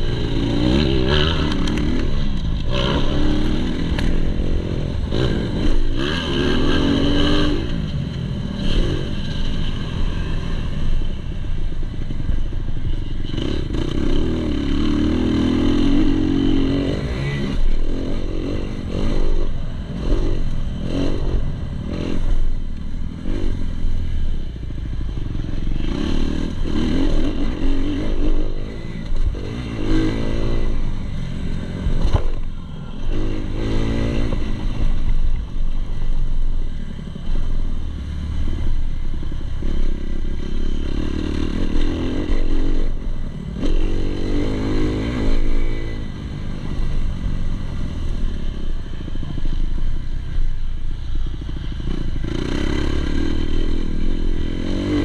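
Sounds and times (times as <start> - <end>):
motorbike engine revving: 0.0 - 7.9, 51.3 - 55.0.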